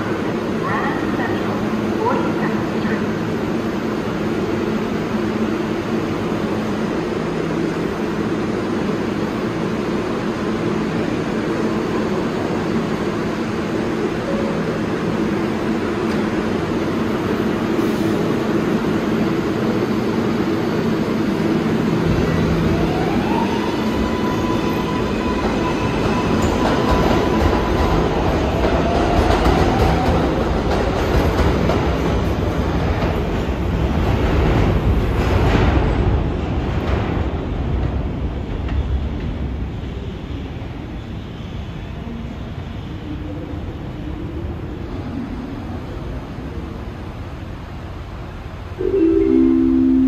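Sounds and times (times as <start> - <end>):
train rumble: 0.0 - 50.0.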